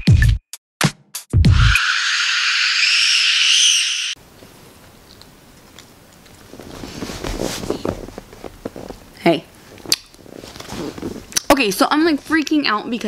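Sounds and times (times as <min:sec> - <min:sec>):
high-pitched hissing sound effect: 0:01.7 - 0:04.2
rustling: 0:04.3 - 0:12.3.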